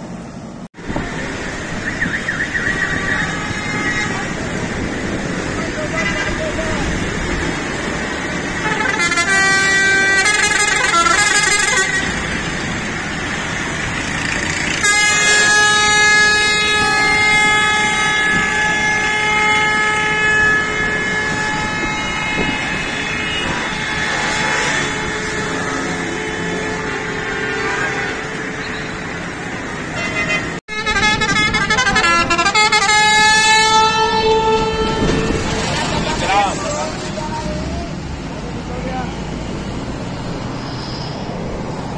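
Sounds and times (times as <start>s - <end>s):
street traffic: 0.0s - 41.9s
air horn blasts: 2.6s - 4.8s, 5.8s - 7.5s, 8.5s - 12.6s, 14.2s - 29.3s, 29.9s - 36.6s.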